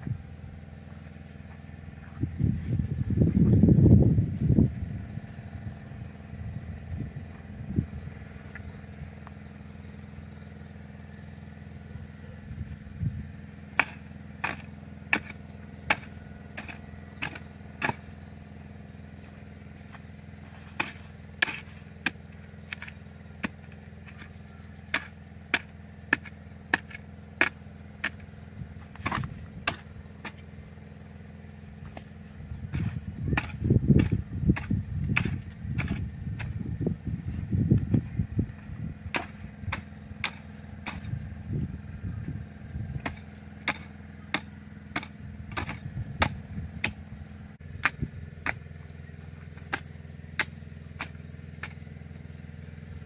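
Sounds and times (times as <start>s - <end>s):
engine drone: 0.0s - 53.0s
heavy thuds and scraping: 13.7s - 18.1s, 19.2s - 30.6s, 31.4s - 41.7s
garden tool chopping soil: 13.7s - 18.3s, 19.2s - 30.6s, 31.4s - 36.8s, 37.8s - 41.3s, 42.9s - 53.0s.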